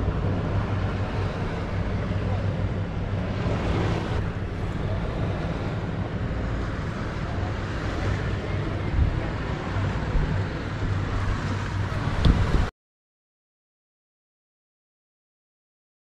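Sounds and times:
boat engine humming: 0.0s - 12.7s
wind buffeting microphone: 0.0s - 12.7s.

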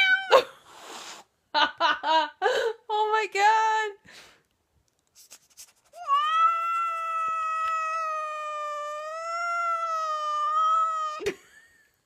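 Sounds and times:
cat yowling: 6.0s - 11.2s.

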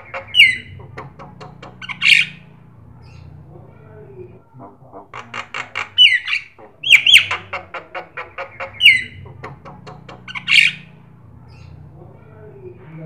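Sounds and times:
bird clicking notes: 0.0s - 2.6s, 5.1s - 11.6s.

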